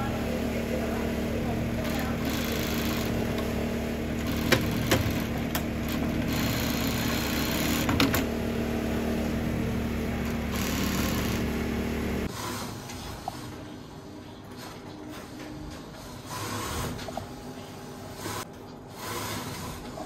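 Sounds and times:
sewing machine running: 0.0 - 12.3.

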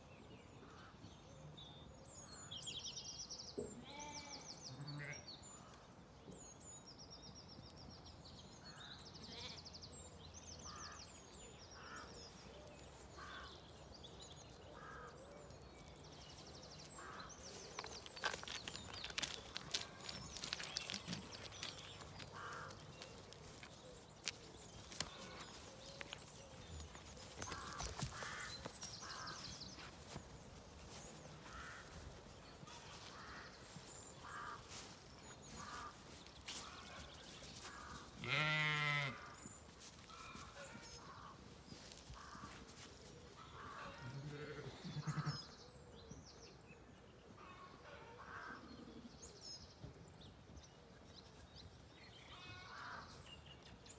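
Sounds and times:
faint clicks and rustles: 16.2 - 31.3
sheep bleating: 38.2 - 39.2.

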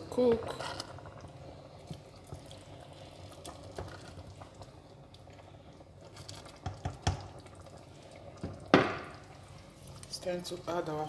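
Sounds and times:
wooden spoon stirring thick soup: 0.1 - 11.0.

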